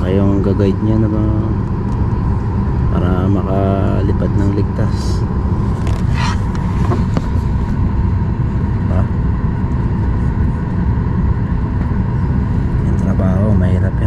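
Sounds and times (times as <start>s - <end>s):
airliner cabin low rumble: 0.0s - 14.0s
thin steady whine: 0.0s - 14.0s.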